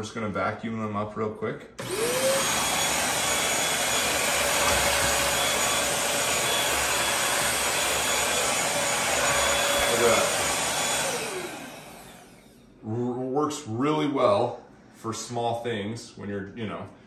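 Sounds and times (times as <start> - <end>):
stick vacuum running: 1.8 - 12.7.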